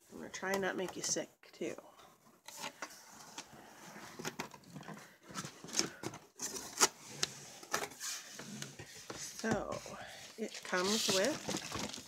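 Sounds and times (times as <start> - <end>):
packaging rustling and crinkling: 4.1 - 12.0.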